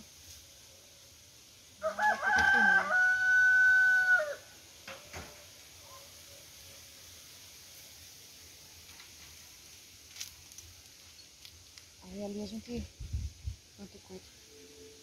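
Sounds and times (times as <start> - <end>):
rooster crowing: 1.8 - 4.6.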